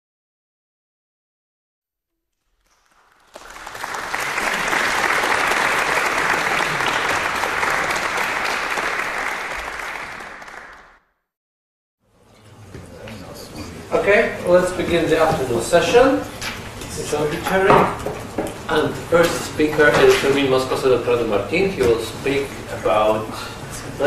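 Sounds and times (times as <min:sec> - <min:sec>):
audience applauding: 0:02.5 - 0:11.1.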